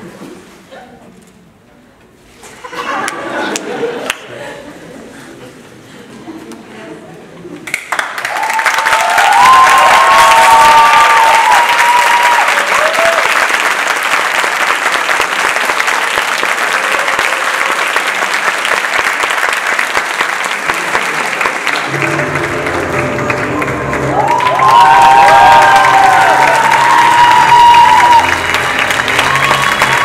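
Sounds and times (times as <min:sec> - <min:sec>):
audience applauding: 0:07.7 - 0:30.0
whoops and cheers: 0:08.2 - 0:13.4, 0:24.0 - 0:30.0
low music: 0:21.8 - 0:30.0.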